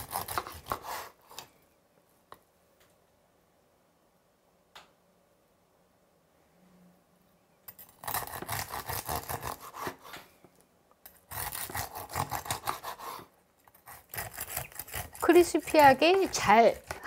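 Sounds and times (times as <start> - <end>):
bread knife sawing crackling: 0.0 - 1.2, 8.0 - 10.2, 11.2 - 17.0.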